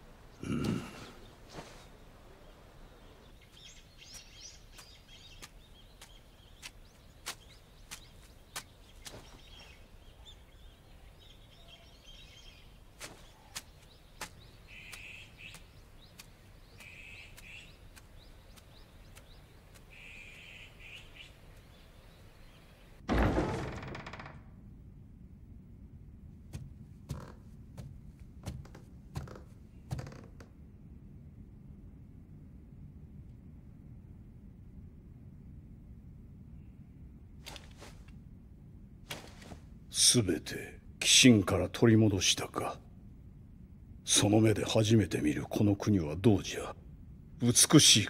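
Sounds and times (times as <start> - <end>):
bird chirps: 0.4 - 23.0
faint clicks: 13.5 - 21.7.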